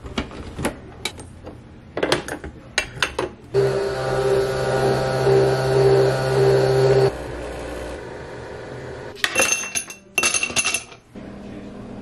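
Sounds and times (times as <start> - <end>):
coffee machine running: 3.5 - 9.2.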